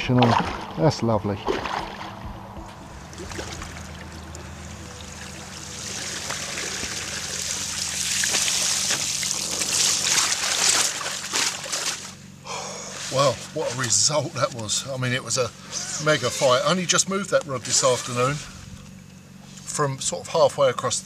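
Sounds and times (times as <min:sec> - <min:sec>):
water streaming and dripping: 0:01.5 - 0:11.6.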